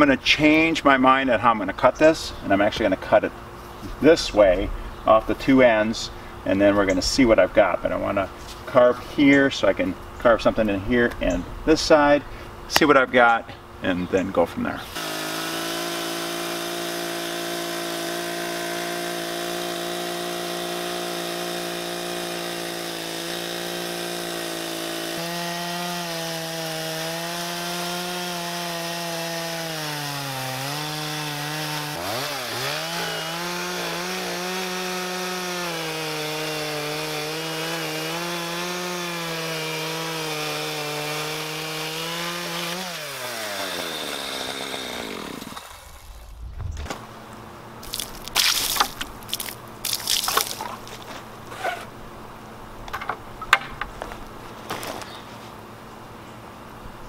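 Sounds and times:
chainsaw cutting wood: 14.8s - 47.0s, 47.8s - 51.9s.

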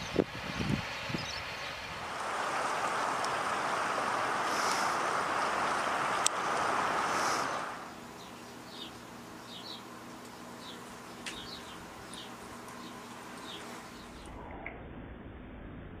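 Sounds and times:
steady rushing noise: 0.0s - 8.8s.

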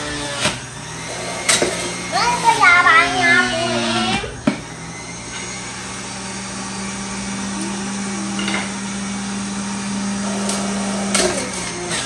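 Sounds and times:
juicer motor humming: 0.0s - 12.0s.

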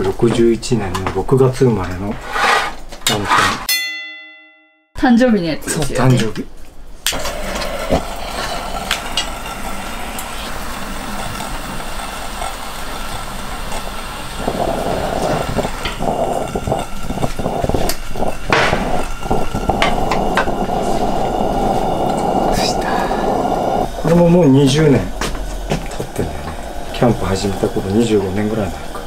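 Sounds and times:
pressure lantern hissing: 7.0s - 29.0s
lantern clicks and knocks: 14.4s - 22.6s.

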